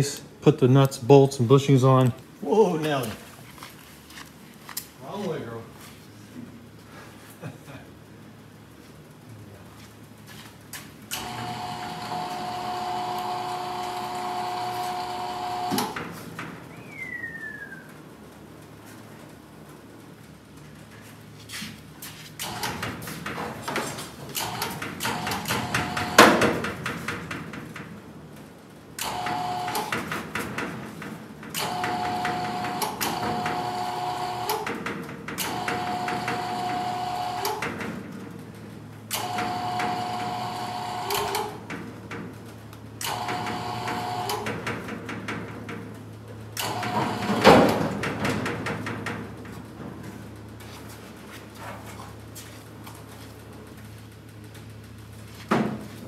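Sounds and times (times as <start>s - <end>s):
electric hoist motor whining: 11.1s - 17.4s, 24.3s - 26.7s, 29.0s - 30.4s, 31.5s - 37.8s, 39.1s - 41.8s, 42.9s - 44.9s, 46.1s - 48.3s.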